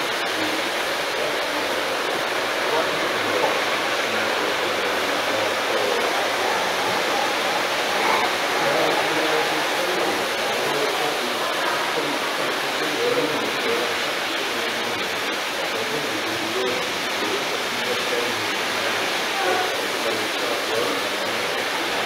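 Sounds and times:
faint indistinct voices: 0.0 - 22.0
steady rushing noise: 0.0 - 22.0.

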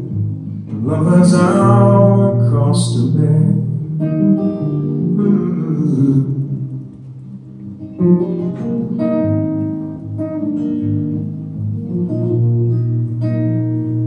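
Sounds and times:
acoustic guitar strumming chords: 0.0 - 14.0.

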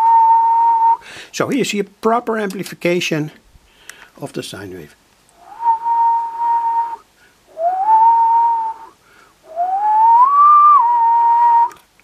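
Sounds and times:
person whistling rising tones: 0.0 - 1.0, 5.4 - 11.8.

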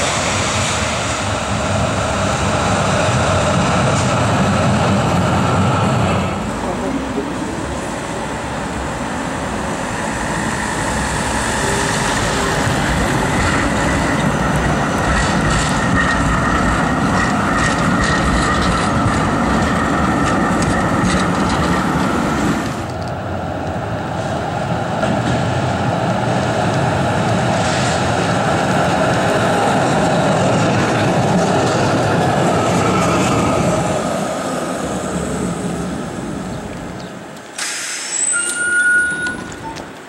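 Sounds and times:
tram passing: 0.0 - 40.0
tram rumbling on straight track: 0.0 - 40.0
tram wheels squealing: 6.3 - 23.1, 36.4 - 40.0.

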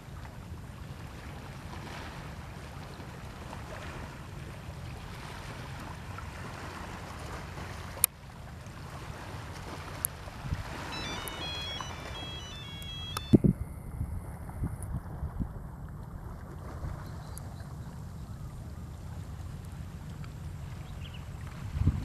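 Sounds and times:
wind noise on microphone: 10.3 - 17.1, 21.4 - 22.0
faint high chirps: 10.9 - 13.4.

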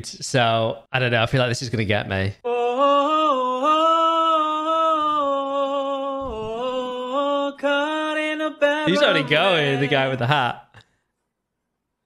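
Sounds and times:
men singing a cappella: 2.5 - 10.5.

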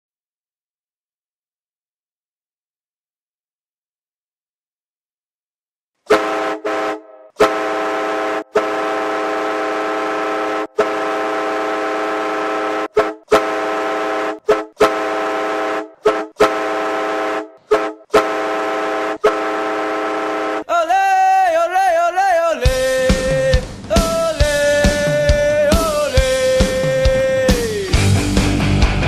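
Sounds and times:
hockey goal horn blasts: 6.1 - 20.7.

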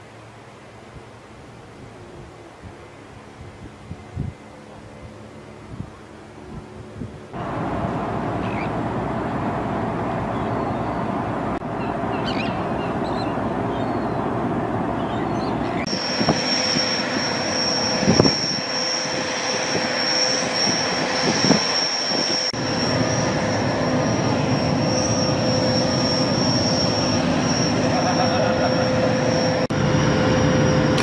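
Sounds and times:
outdoor noise: 0.0 - 31.0
steady high whine: 0.0 - 31.0
steady mechanical drone: 0.0 - 31.0.

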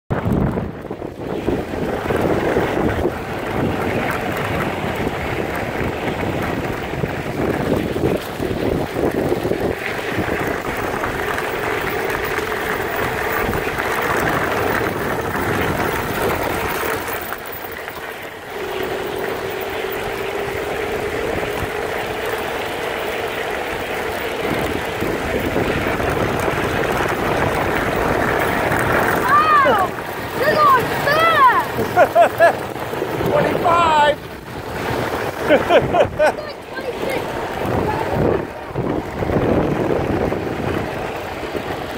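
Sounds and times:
wind rushing over microphone: 0.1 - 41.9
tyres crunching on gravel: 1.2 - 41.9
steady whine: 8.8 - 40.3.

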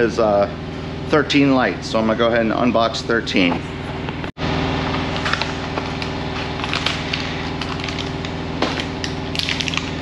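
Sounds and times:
low mechanical hum: 0.0 - 10.0
plastic packaging crackling: 5.0 - 10.0.

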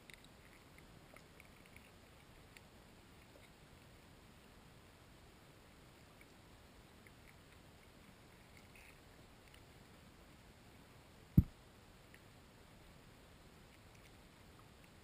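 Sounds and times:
dull thump: 11.4 - 11.6.

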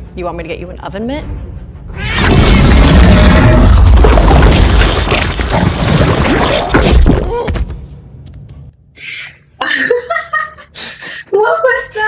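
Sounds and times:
deep rumbling creature sound: 2.0 - 7.4.

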